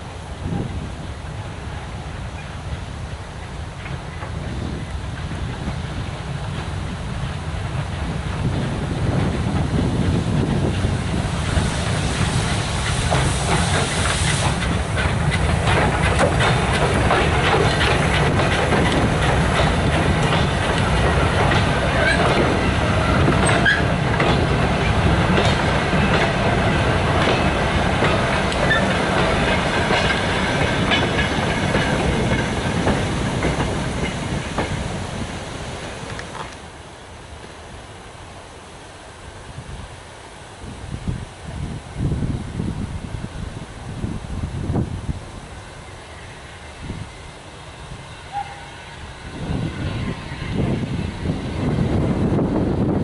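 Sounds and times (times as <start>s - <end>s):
steam hiss: 0.0s - 53.0s
wagon wheels clanking over rail joints: 12.8s - 35.0s.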